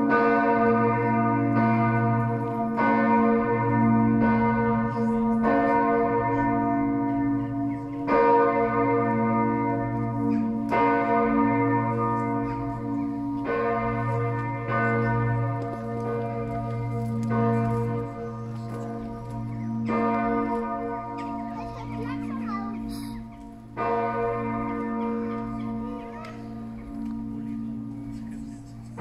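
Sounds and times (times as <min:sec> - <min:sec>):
church bells pealing: 0:00.0 - 0:29.0.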